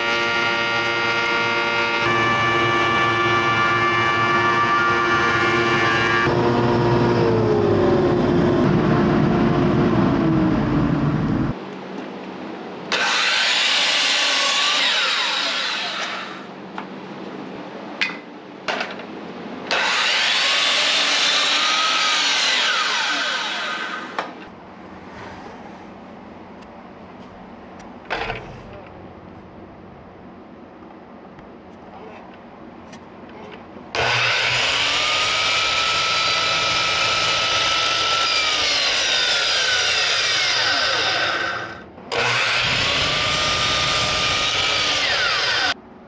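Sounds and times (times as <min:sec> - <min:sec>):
miter saw cutting boards: 0:00.0 - 0:10.7, 0:12.9 - 0:16.5, 0:19.7 - 0:24.4, 0:33.9 - 0:45.8
loud woodworking machine running: 0:00.0 - 0:11.6, 0:12.9 - 0:16.5, 0:19.7 - 0:24.5, 0:33.9 - 0:45.8.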